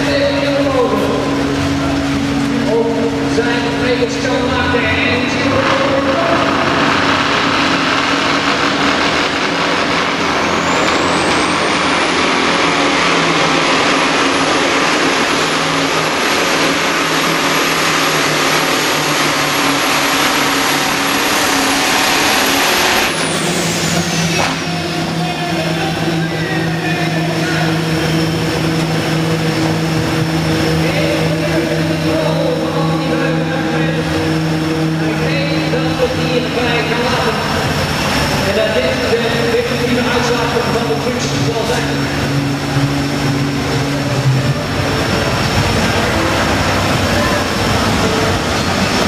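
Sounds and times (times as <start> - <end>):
diesel engine at full load: 0.0 - 49.0
diesel engine idling: 0.0 - 49.0
high turbo whistle: 6.3 - 30.6.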